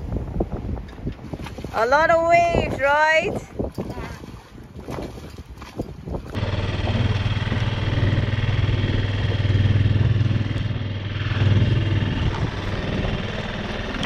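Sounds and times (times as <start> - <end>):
water noise: 0.0 - 14.0
wind: 0.0 - 14.0
small outboard motor droning: 6.3 - 14.0.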